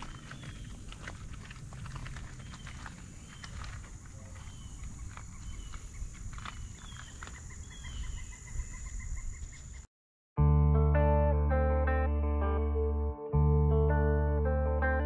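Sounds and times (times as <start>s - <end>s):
wind rumble on microphone: 0.0s - 9.8s
small bird chirping: 2.2s - 9.9s
guitar music: 10.4s - 15.0s.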